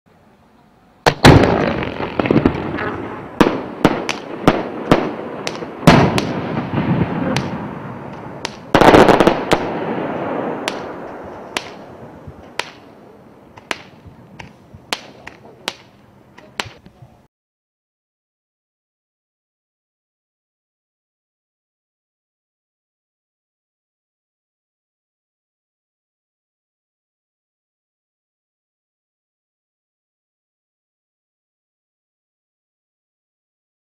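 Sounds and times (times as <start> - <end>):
fireworks bursting: 1.0 - 17.0.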